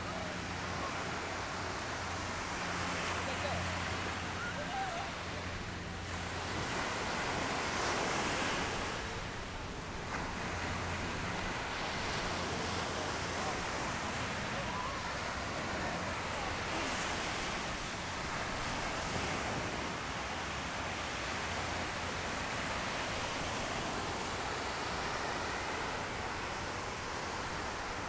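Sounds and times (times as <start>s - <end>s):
distant voices: 0.0s - 28.0s
surf washing up a beach: 0.0s - 28.0s.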